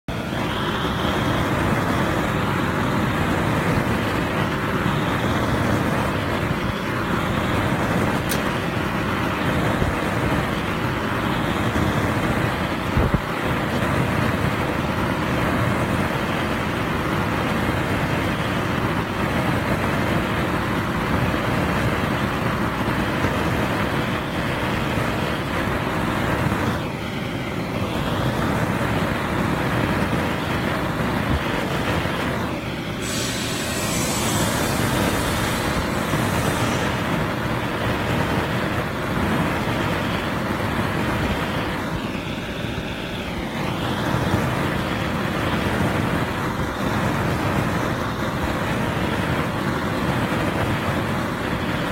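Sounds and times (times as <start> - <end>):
gas torch flame hissing: 0.1 - 13.8, 30.6 - 46.1.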